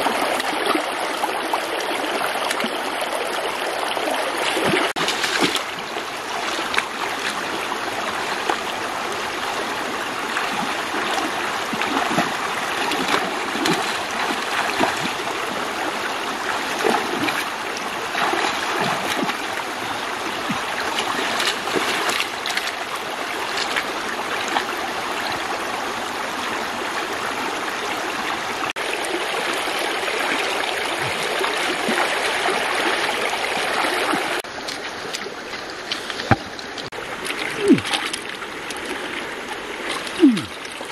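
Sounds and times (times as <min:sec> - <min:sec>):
river water rushing over stones: 0:00.0 - 0:40.9
small splashes in water: 0:04.4 - 0:08.7, 0:10.3 - 0:15.9, 0:16.5 - 0:24.7, 0:33.8 - 0:40.9.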